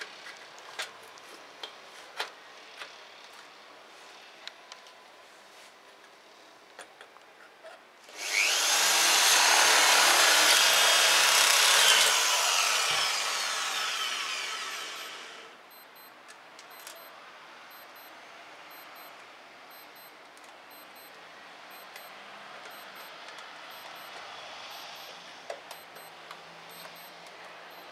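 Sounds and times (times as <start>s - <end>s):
electric power tool whining: 8.1s - 15.5s.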